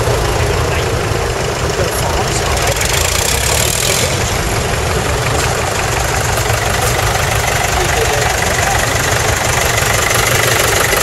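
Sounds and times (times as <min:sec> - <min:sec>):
tractor engines idling: 0:00.0 - 0:11.0.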